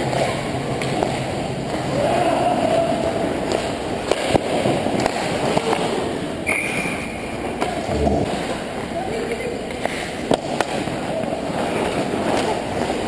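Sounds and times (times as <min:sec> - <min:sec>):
hockey sticks and puck clacks: 0:00.0 - 0:02.1, 0:03.3 - 0:07.0, 0:09.7 - 0:13.0.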